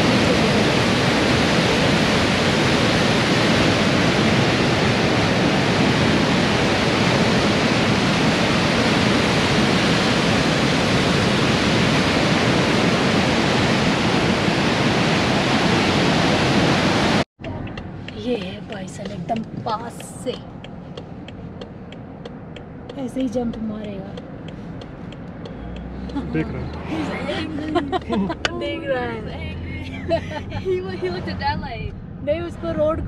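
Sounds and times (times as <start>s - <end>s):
waterfall rushing: 0.0s - 17.2s.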